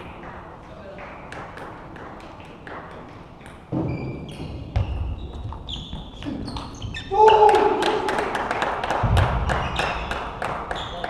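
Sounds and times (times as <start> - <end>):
shoes squeaking on floor: 3.4 - 7.5, 9.5 - 11.0.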